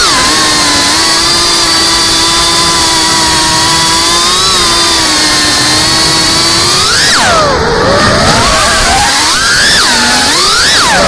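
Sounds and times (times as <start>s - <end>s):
drone motors buzzing: 0.0s - 11.0s.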